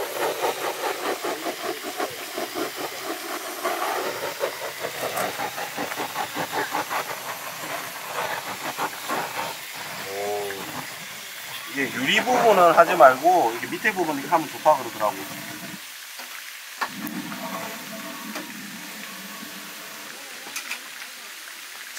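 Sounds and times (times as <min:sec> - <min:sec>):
gas torch flame hissing: 0:00.0 - 0:15.9, 0:16.7 - 0:21.1.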